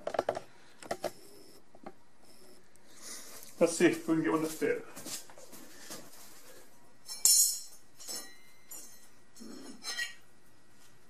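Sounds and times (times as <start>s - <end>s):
metallic clink with ringing: 7.1s - 9.1s.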